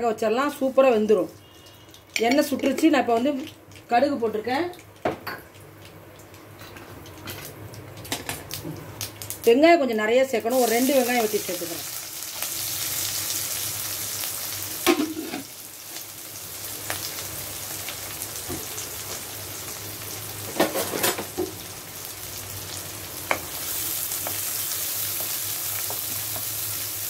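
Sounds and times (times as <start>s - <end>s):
onions sizzling in oil: 10.5s - 27.0s.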